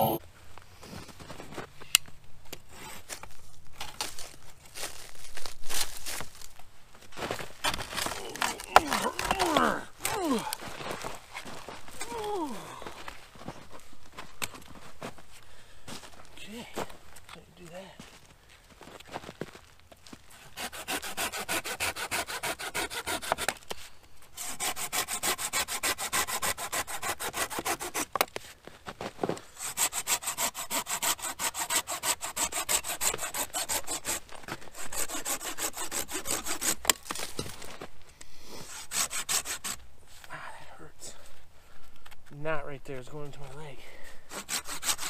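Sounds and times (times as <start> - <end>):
hand saw cutting wood: 7.6 - 10.6, 20.4 - 23.7, 24.3 - 28.3, 29.5 - 37.6, 38.5 - 39.8, 44.3 - 45.0.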